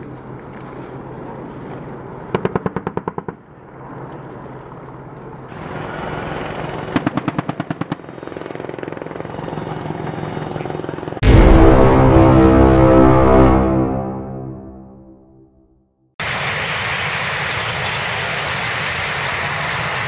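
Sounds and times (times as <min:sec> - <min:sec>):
helicopter rotor and engine: 0:04.0 - 0:11.2, 0:16.2 - 0:20.0.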